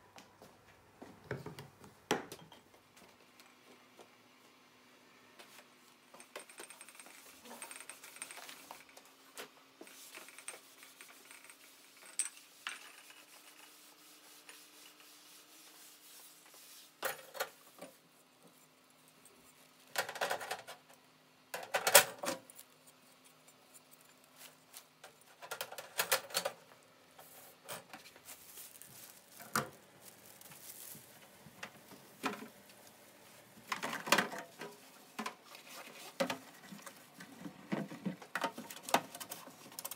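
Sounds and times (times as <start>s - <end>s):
scrubbing in a steel sink: 9.9s - 17.0s.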